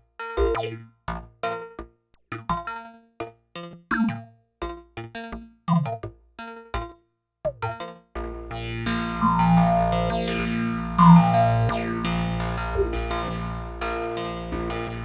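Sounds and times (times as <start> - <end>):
plucked synthesizer notes: 8.4 - 15.0.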